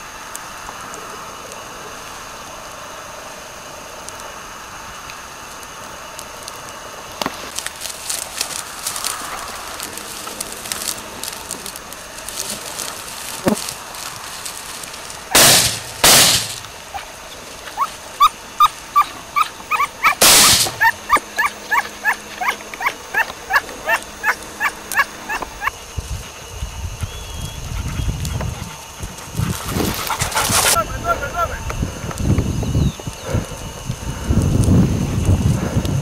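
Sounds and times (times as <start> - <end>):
shotgun shots: 15.3 - 16.6, 20.2 - 20.8
dog yelping: 16.9 - 25.8, 29.8 - 31.6.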